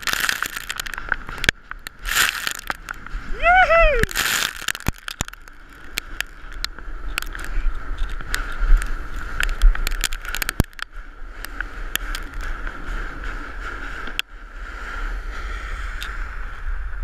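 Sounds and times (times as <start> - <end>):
stones clicking against board: 0.0 - 3.0, 4.1 - 10.9, 12.0 - 12.4
board scraping down gravel: 0.0 - 3.4, 4.0 - 16.5
wind buffeting microphone: 0.0 - 17.0.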